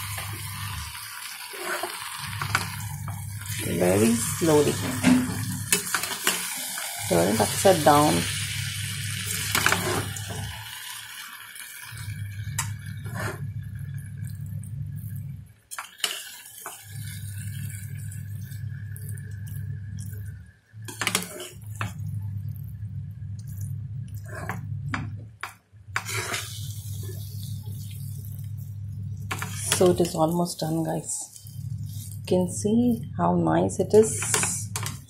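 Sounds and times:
steady low hum: 2.2s - 6.2s, 11.9s - 15.8s, 16.7s - 35.0s.

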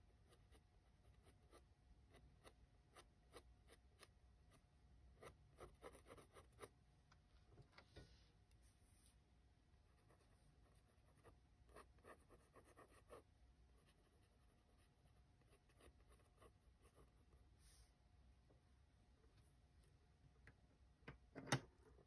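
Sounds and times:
pencil scratching on paper: 0.1s - 4.6s, 5.2s - 6.8s, 9.9s - 17.9s.

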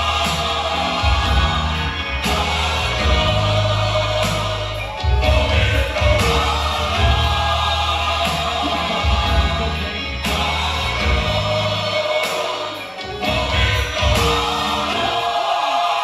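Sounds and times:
hip-hop beat with heavy bass: 0.0s - 16.0s
sampled choir-like vocal: 0.0s - 16.0s.

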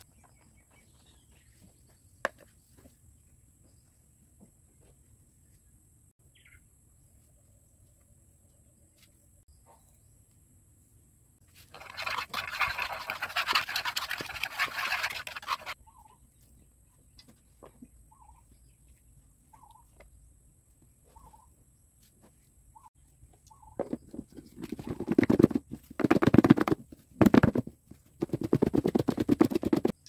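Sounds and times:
bird chirping: 0.0s - 4.0s, 5.4s - 7.0s, 15.7s - 20.3s, 21.0s - 21.9s, 22.7s - 25.2s
dry mix stirred in plastic tub: 11.5s - 15.8s.

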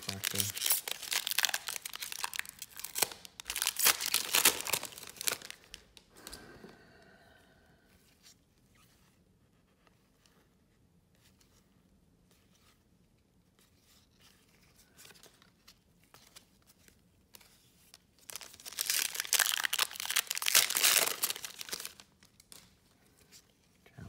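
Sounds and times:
foil wrapper tearing and crinkling: 0.0s - 5.8s, 18.2s - 22.7s.

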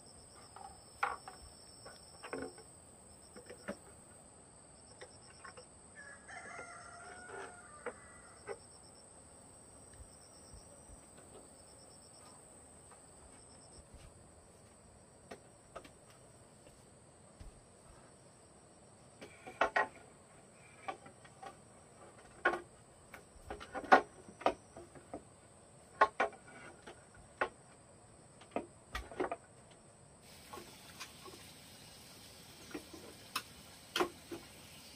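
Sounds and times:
high insect call: 0.0s - 26.7s, 29.6s - 34.9s
bamboo poles knocking: 0.6s - 2.7s.

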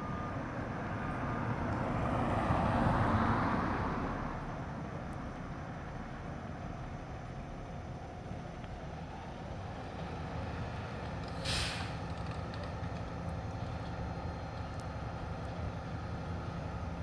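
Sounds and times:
air hiss burst: 11.4s - 12.0s.

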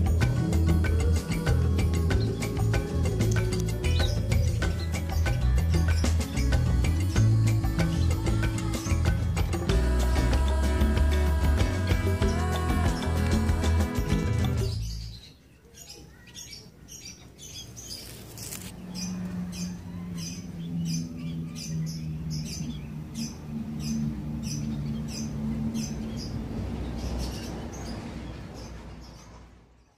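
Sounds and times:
background music: 0.0s - 15.2s
small bird chirping: 14.4s - 28.0s.

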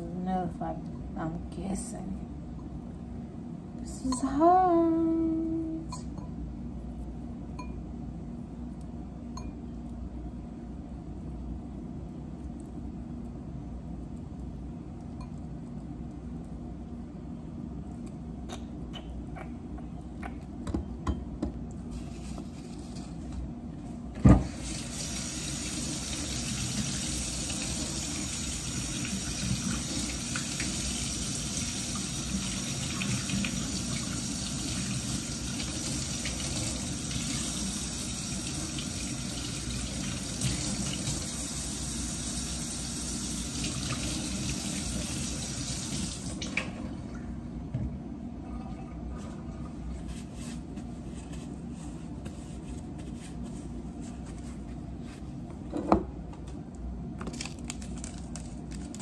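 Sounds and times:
kitchen tap running: 24.3s - 46.8s.

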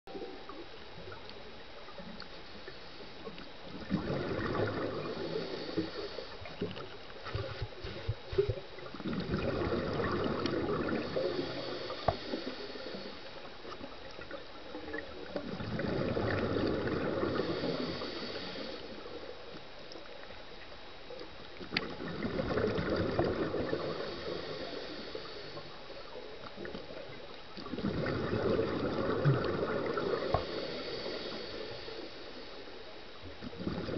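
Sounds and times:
steady low hiss: 0.1s - 33.9s
diver exhaling bubbles underwater: 3.7s - 13.0s, 14.9s - 18.8s, 21.7s - 25.3s, 27.6s - 31.4s, 33.4s - 33.9s.

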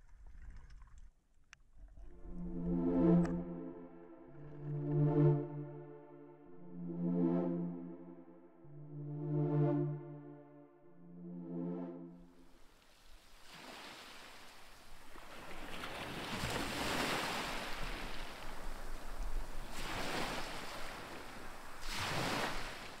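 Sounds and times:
small waves washing on sand: 12.8s - 23.0s.

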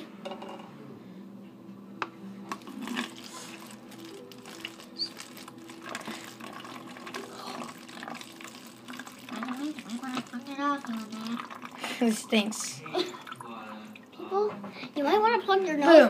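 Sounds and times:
liquid trickling into bottle: 2.5s - 14.2s.

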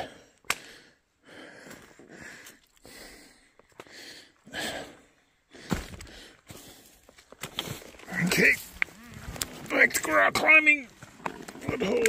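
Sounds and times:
person breathing hard: 0.0s - 7.1s.

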